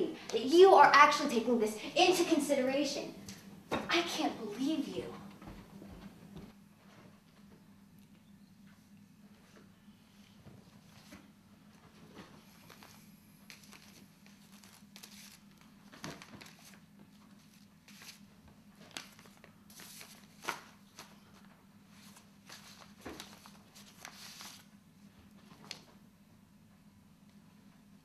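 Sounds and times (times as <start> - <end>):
faint low hum: 0.0 - 28.0
paper rustling and tearing: 12.6 - 24.7.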